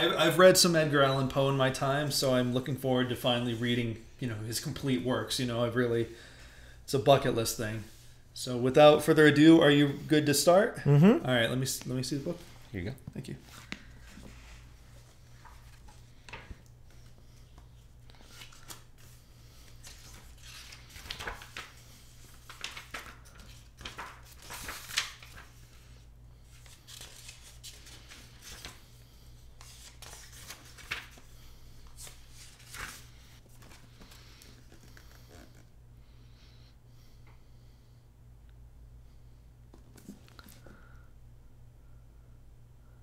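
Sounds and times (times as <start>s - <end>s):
low steady hum: 0.0s - 43.0s
book pages turning: 13.5s - 25.8s, 26.5s - 29.0s, 29.6s - 35.7s.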